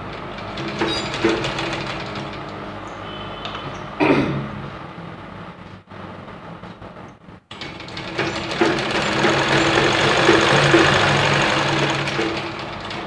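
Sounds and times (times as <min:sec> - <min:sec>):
sewing machine stitching: 0:00.0 - 0:02.5, 0:07.5 - 0:13.0.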